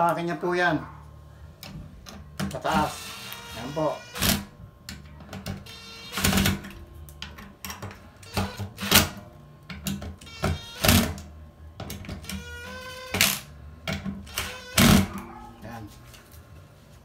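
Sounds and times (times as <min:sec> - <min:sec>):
impact driver bursts: 0:08.2 - 0:09.2, 0:10.2 - 0:11.2, 0:14.2 - 0:15.1.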